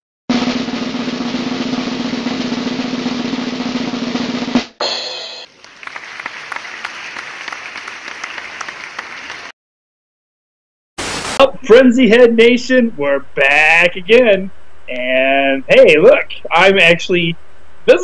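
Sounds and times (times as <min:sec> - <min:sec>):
snare drum roll: 0:00.3 - 0:06.0.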